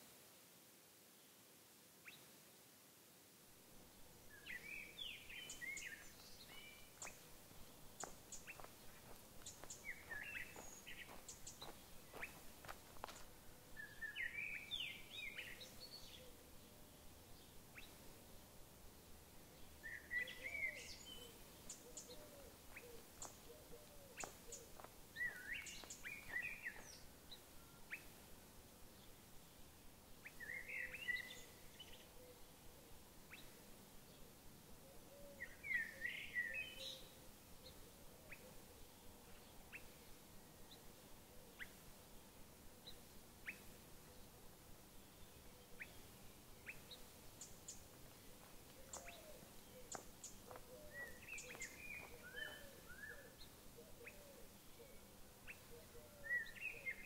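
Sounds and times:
faint background hiss: 0.0 - 57.0
short bird ticks and chirps: 7.9 - 12.4, 21.6 - 27.0, 48.6 - 52.7
songbird warbling: 19.8 - 27.0, 48.8 - 57.0.

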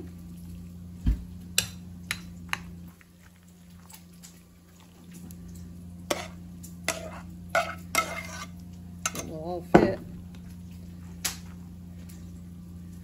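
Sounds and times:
spoon stirring rice mix: 1.6 - 9.6.

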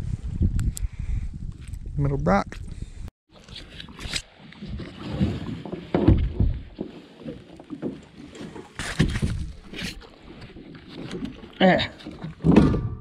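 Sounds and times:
kayak rocking on water: 4.6 - 12.9.

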